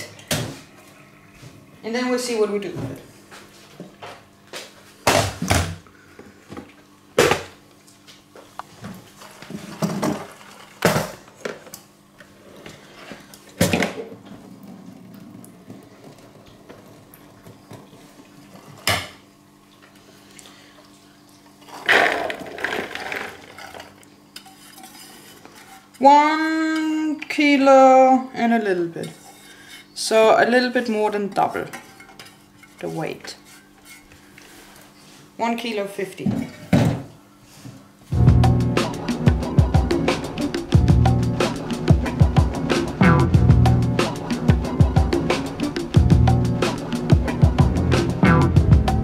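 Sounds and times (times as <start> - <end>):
chickpeas clattering into bowl: 21.8 - 23.9.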